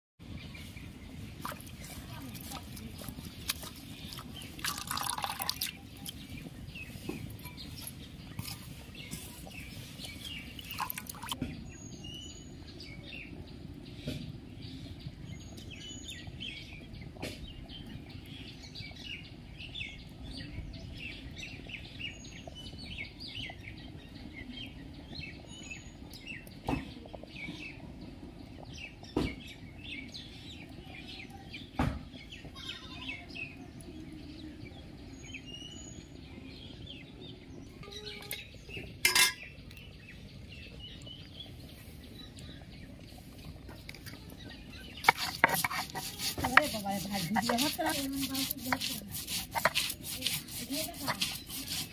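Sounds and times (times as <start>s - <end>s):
birds chirping: 0.3s - 51.9s
water splashing in steel bowl: 1.4s - 6.2s, 10.2s - 11.4s, 44.8s - 51.9s.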